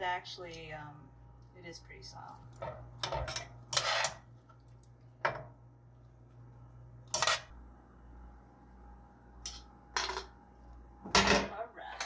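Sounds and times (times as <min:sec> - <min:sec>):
cookware clinking and clattering: 0:02.5 - 0:04.2.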